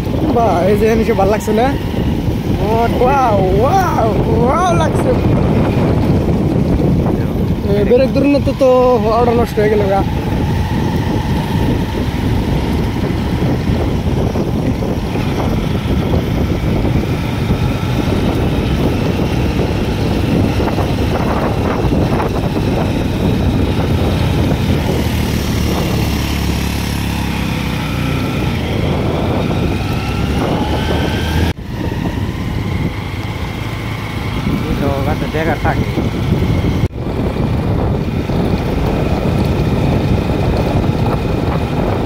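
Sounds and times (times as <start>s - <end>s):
motorbike engine running: 0.0s - 42.0s
wind buffeting microphone: 0.0s - 42.0s.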